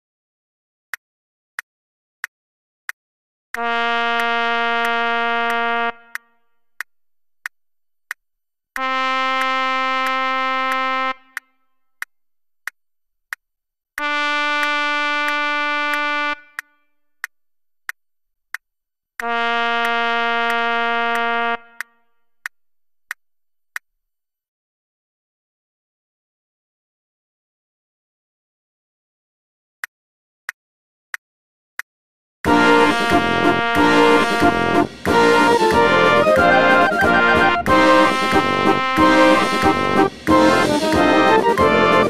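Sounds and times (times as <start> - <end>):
trumpet long notes: 3.6 - 6.5, 8.8 - 11.5, 14.0 - 16.7, 19.2 - 22.0, 32.5 - 42.0.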